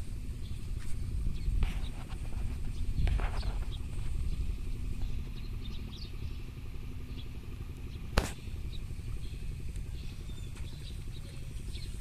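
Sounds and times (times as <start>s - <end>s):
wind rumbling on microphone: 0.0s - 12.0s
sharp click: 8.1s - 8.4s.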